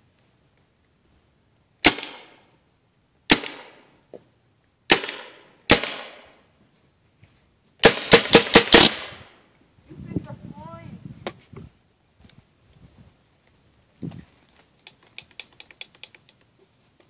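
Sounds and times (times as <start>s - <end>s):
paintball gun shots: 1.8s - 2.4s, 3.3s - 3.8s, 4.9s - 6.4s, 7.8s - 9.3s.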